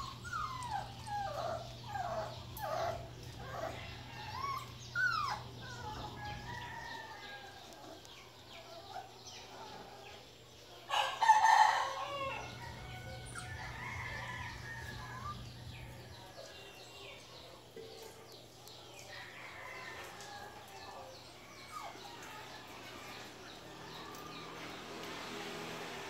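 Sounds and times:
rooster crowing: 10.9s - 15.4s.

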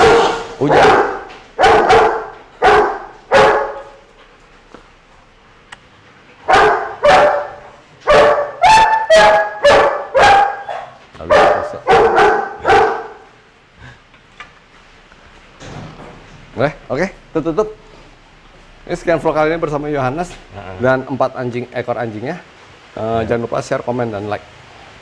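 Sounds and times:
dog yipping: 0.0s - 3.9s, 6.5s - 13.2s
dog barking: 0.0s - 4.0s, 6.4s - 13.3s.

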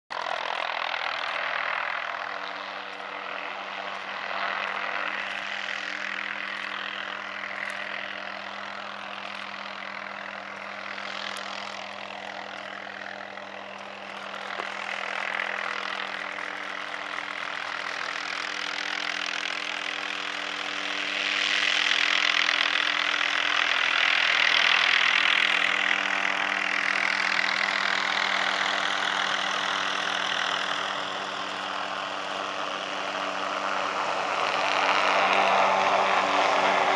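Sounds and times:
helicopter rotor and engine: 0.1s - 36.9s
steady low engine hum: 0.1s - 36.9s.

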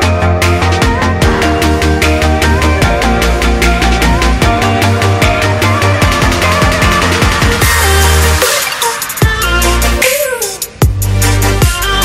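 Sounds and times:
falling bass swoop: 0.0s - 8.4s
electronic dance music: 0.0s - 12.0s.

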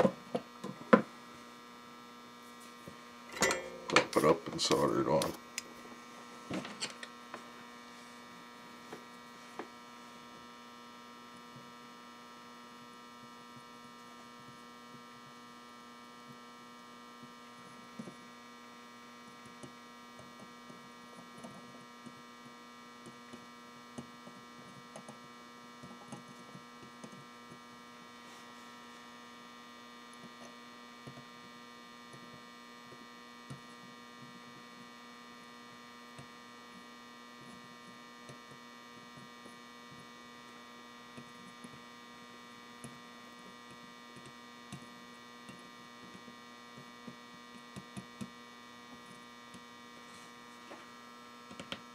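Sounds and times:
inverter electrical hum: 0.0s - 51.9s
clicks and taps of wire: 42.8s - 48.3s, 51.5s - 51.9s.

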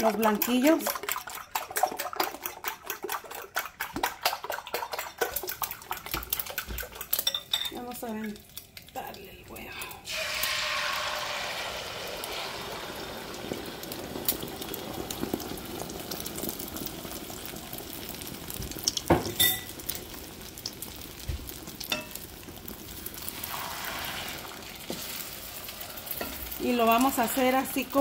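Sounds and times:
wooden spatula in pan: 0.0s - 8.4s, 23.2s - 28.0s
eggs sizzling in oil: 0.0s - 28.0s.

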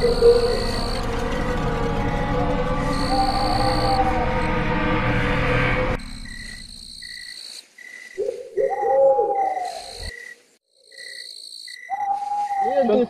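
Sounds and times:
low hooting call: 0.0s - 7.2s, 8.2s - 10.1s
suspenseful music: 0.0s - 7.4s
crickets chirping: 0.0s - 13.0s.

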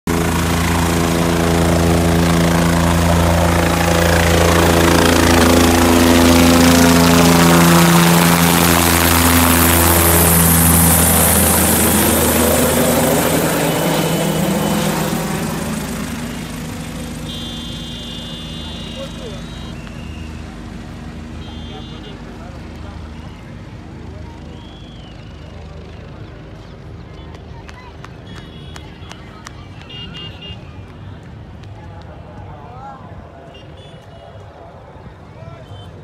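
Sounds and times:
helicopter rotor and engine: 0.1s - 28.4s.

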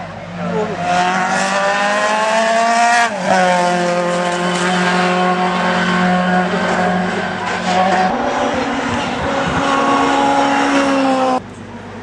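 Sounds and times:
racing car engine revving: 0.4s - 11.4s.

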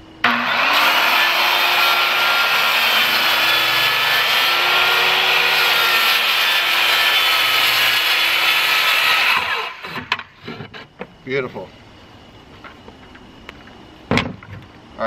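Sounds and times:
circular saw cutting: 0.2s - 10.1s.

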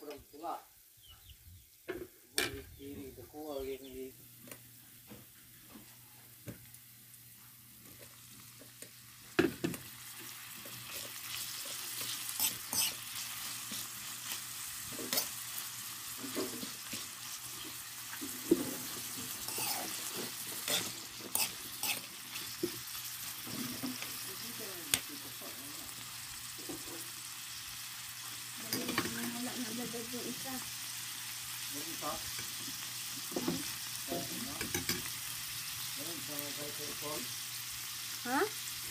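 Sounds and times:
meat sizzling in a wok: 0.0s - 2.6s, 3.8s - 38.9s
spatula scraping a pan: 10.3s - 24.2s.

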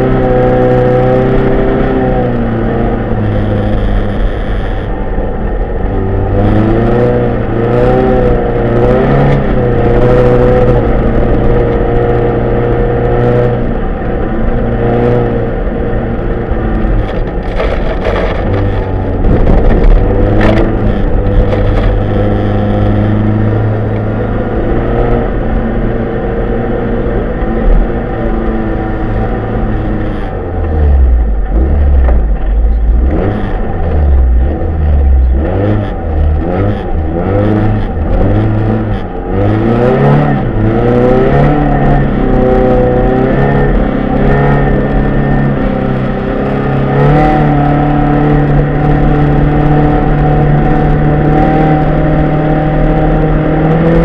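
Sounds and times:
rally car engine revving: 0.0s - 54.0s
car knocking and clattering on snow: 17.0s - 22.0s.

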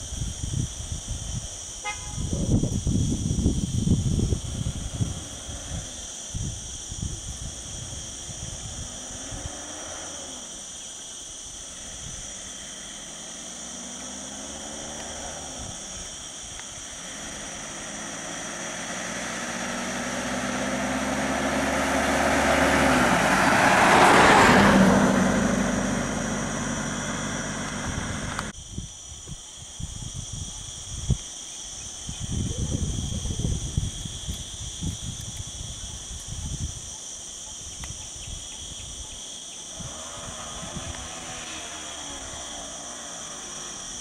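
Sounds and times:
vehicle passing close by: 8.0s - 10.7s, 11.7s - 16.2s, 16.8s - 28.5s, 39.7s - 44.0s.

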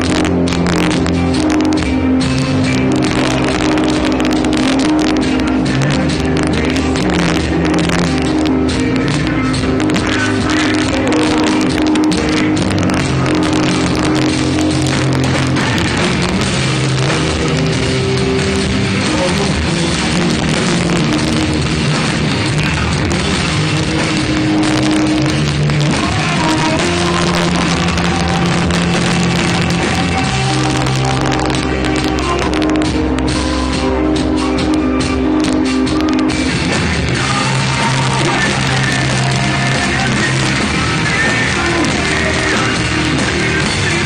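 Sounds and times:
live rock band playing: 0.0s - 44.0s.

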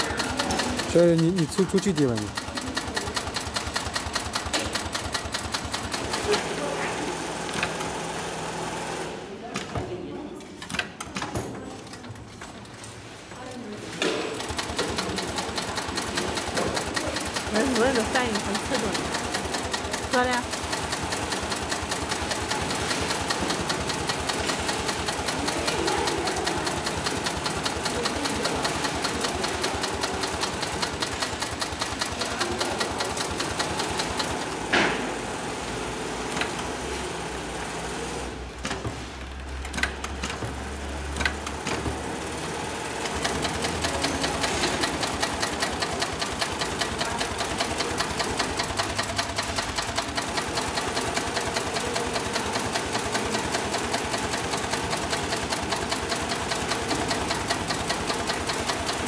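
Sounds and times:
sewing machine stitching: 0.0s - 9.3s, 14.2s - 59.0s.

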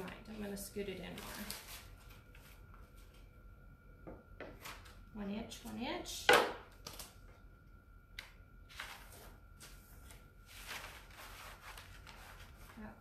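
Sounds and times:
paper rustling: 1.0s - 3.2s, 8.7s - 13.0s.

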